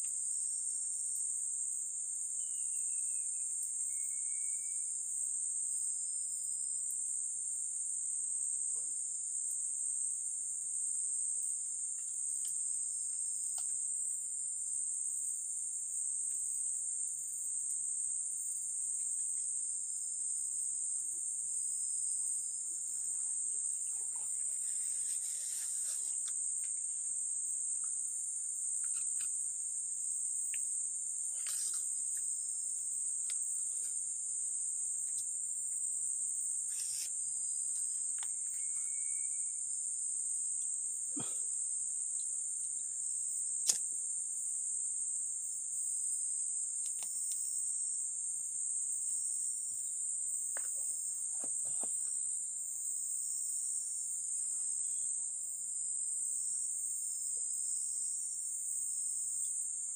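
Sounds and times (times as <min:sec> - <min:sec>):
insects droning: 0:00.0 - 0:59.9
faint bird-like chirps: 0:02.4 - 0:04.9, 0:38.3 - 0:39.6.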